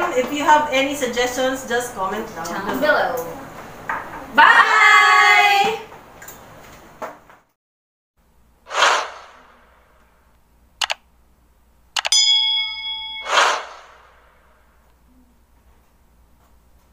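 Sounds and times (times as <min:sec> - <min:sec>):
whoosh: 0:08.7 - 0:10.0, 0:13.2 - 0:14.4
bell ding: 0:12.1 - 0:14.0.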